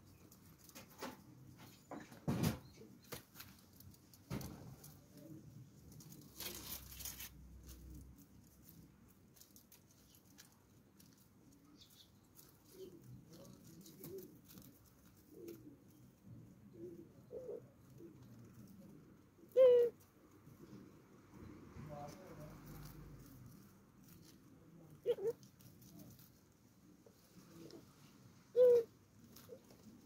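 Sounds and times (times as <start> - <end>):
birds pecking in straw: 2.9 - 30.0
doves cooing: 12.4 - 20.8, 24.9 - 25.4, 27.4 - 30.0.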